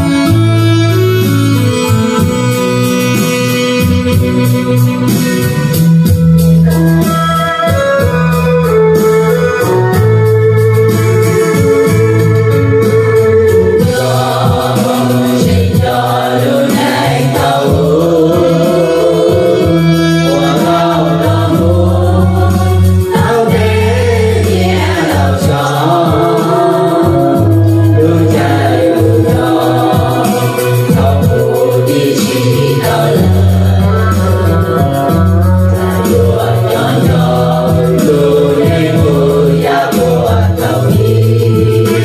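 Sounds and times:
keyboard with held bass notes: 0.0s - 42.0s
voices singing: 13.2s - 42.0s.

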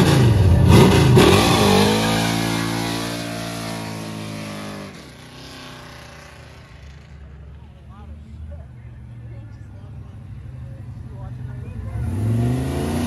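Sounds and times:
car engine revving high: 0.0s - 5.8s, 11.9s - 13.0s.

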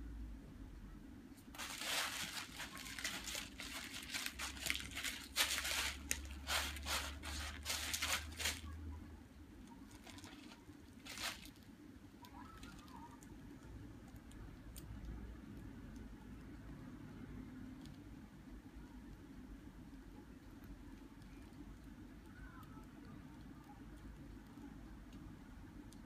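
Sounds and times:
kitten scratching in cat litter: 1.4s - 8.8s, 9.7s - 11.6s.

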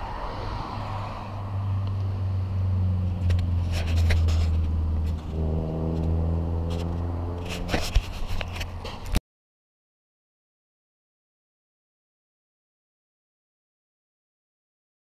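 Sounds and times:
car engine humming: 0.0s - 9.2s.

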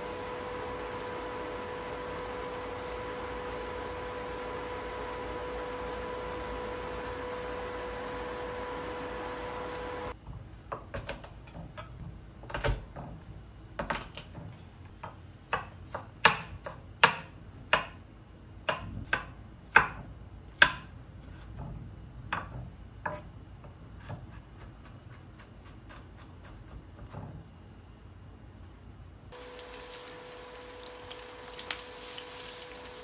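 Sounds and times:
knife chopping on wooden board: 15.0s - 18.0s, 18.6s - 21.7s, 22.3s - 23.3s.

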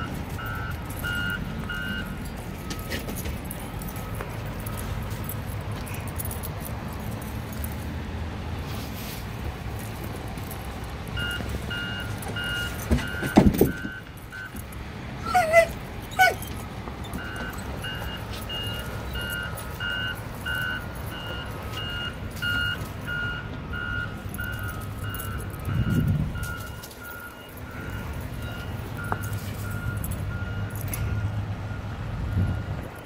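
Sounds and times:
reversing alarm beeping: 0.0s - 6.4s, 10.4s - 14.7s, 16.3s - 32.8s
low engine rumble: 0.0s - 33.0s.

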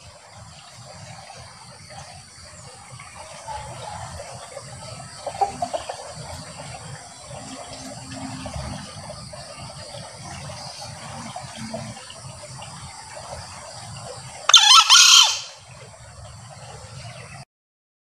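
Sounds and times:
junglefowl high-pitched call: 14.5s - 15.6s.

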